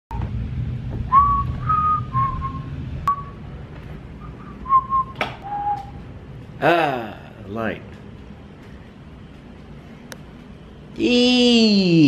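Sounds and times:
person whistling: 1.1s - 3.4s, 4.2s - 6.0s.

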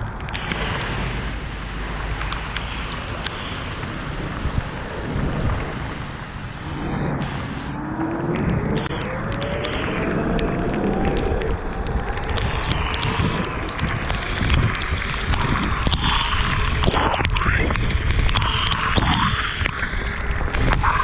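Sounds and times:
sharp ticks: 0.0s - 6.2s, 8.2s - 21.0s
wind noise: 0.0s - 21.0s
tyre hiss on wet road: 0.5s - 7.8s, 12.3s - 17.4s, 18.1s - 21.0s.

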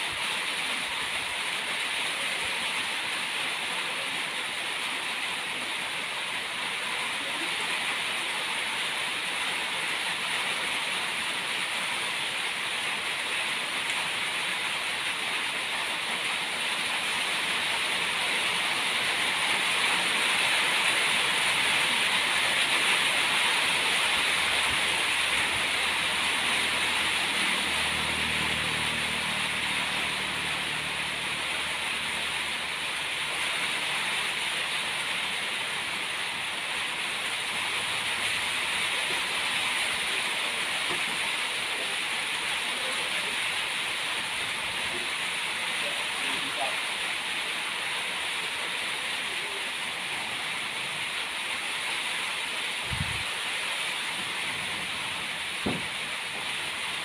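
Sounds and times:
steady outdoor hiss: 0.0s - 57.0s
low engine-like hum: 26.6s - 33.4s.

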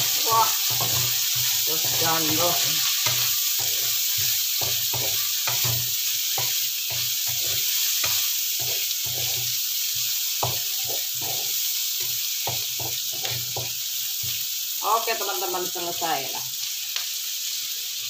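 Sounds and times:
spatula scraping a wok: 0.0s - 14.5s
vegetables sizzling in oil: 0.0s - 18.0s.

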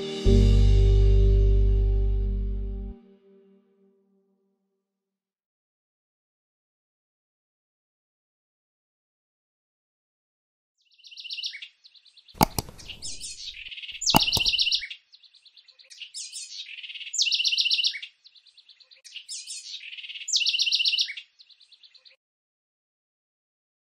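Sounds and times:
mouse clicks: 12.4s - 14.8s
bird trilled chirps: 12.4s - 14.9s.

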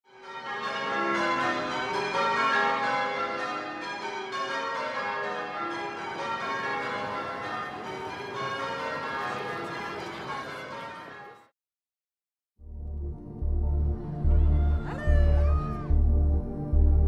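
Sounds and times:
church bells ringing changes: 0.1s - 11.5s.

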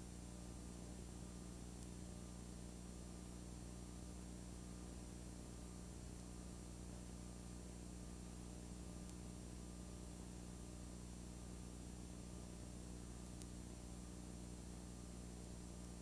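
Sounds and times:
low electrical hum: 0.0s - 16.0s
videotape hiss: 0.0s - 16.0s
faint tick: 1.8s - 2.0s, 9.0s - 9.3s, 13.2s - 13.6s.

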